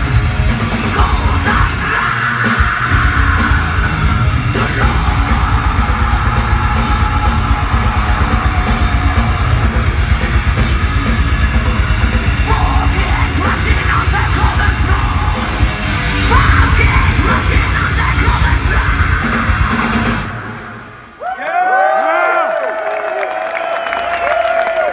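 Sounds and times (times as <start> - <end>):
heavy metal band playing live: 0.0 - 21.2.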